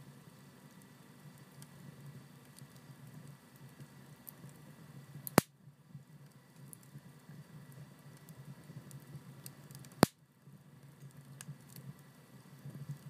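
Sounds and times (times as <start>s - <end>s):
fire crackling in a stove: 0.0s - 13.0s.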